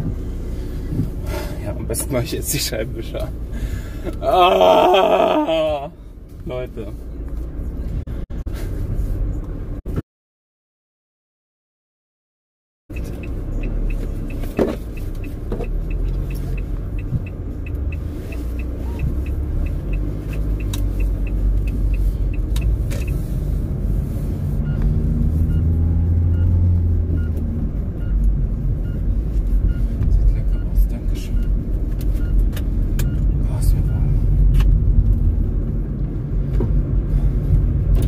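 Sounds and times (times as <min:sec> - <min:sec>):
engine and road rumble in van: 0:00.0 - 0:10.0, 0:12.9 - 0:38.0.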